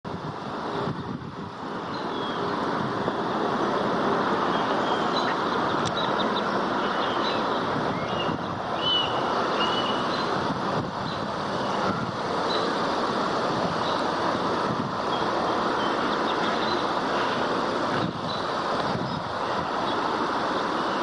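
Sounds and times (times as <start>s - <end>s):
steady rushing noise: 0.0s - 21.0s
high bird chirps: 4.5s - 10.4s.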